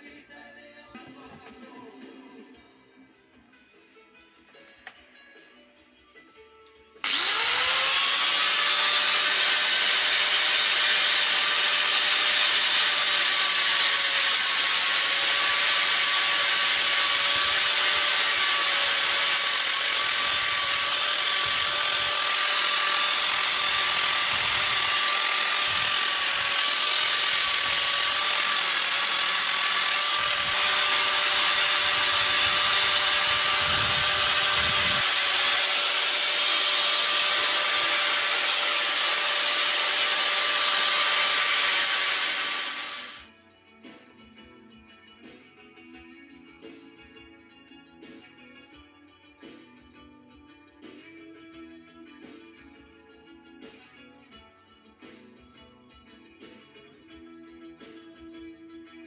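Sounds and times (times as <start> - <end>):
angle grinder whining: 7.0 - 43.3
wood grinding on disc: 7.0 - 43.3.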